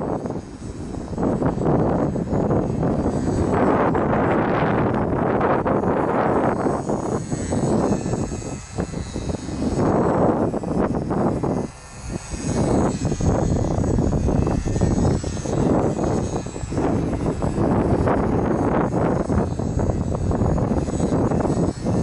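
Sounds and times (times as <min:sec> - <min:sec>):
rc plane motor whine: 0:00.0 - 0:22.0
wind buffeting microphone: 0:00.0 - 0:22.0.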